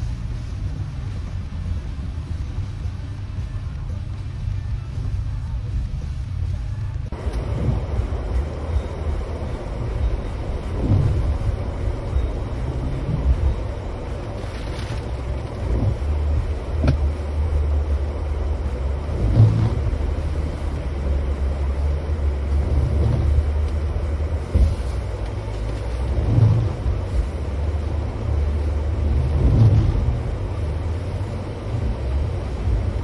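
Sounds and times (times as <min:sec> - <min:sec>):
car engine and road rumble: 0:00.0 - 0:33.0
heavy thuds through ruts: 0:07.2 - 0:28.2.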